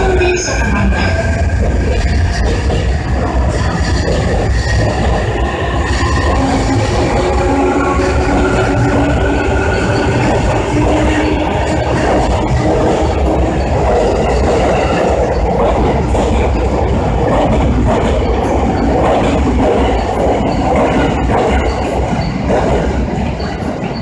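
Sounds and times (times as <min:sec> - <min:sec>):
train wheels rumbling on rails: 0:00.0 - 0:24.0.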